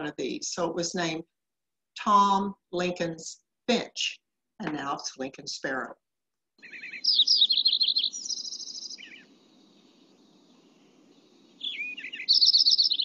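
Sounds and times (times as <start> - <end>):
sparrow song: 6.6 - 13.0.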